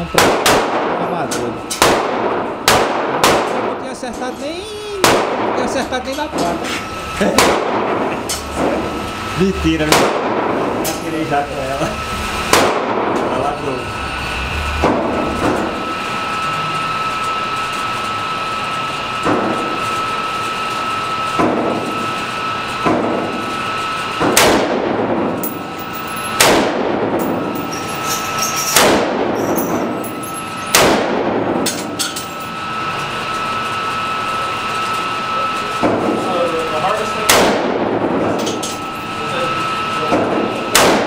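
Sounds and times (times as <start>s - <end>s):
rifle shots echoing indoors: 0.2s - 1.0s, 1.7s - 3.8s, 5.0s - 5.7s, 7.4s - 8.1s, 9.9s - 10.7s, 12.5s - 13.2s, 24.2s - 25.6s, 26.4s - 27.4s, 28.8s - 29.9s, 30.7s - 31.7s, 37.3s - 38.1s, 40.7s - 41.0s.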